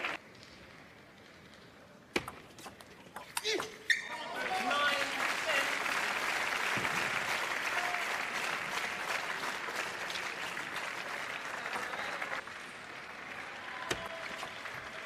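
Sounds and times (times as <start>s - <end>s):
crowd applauding: 0.0s - 0.2s, 4.3s - 15.0s.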